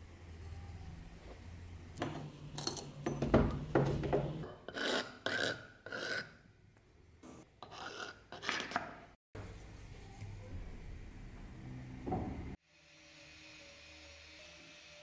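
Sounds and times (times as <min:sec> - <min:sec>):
rubbing and scraping on anvil: 0:02.0 - 0:06.4.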